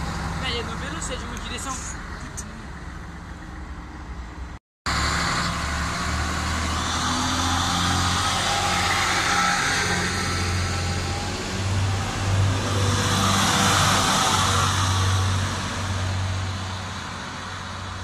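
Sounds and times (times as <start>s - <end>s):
diesel engine low hum: 0.0s - 18.0s
train rushing noise: 4.4s - 18.0s.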